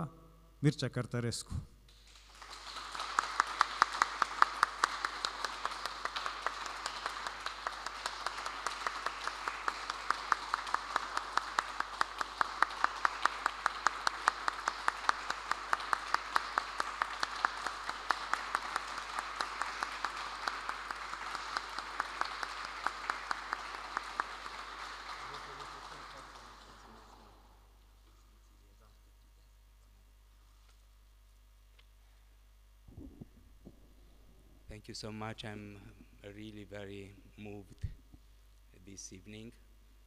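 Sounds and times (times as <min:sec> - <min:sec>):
sharp individual claps: 0:01.9 - 0:27.3
audience applauding: 0:02.0 - 0:27.5.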